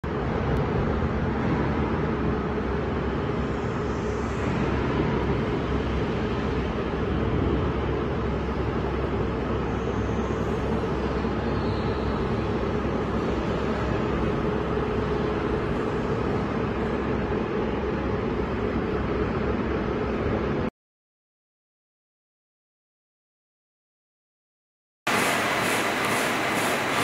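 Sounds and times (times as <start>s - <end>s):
constant rushing noise: 0.0s - 20.7s
machine hum: 0.0s - 20.7s, 25.1s - 27.0s.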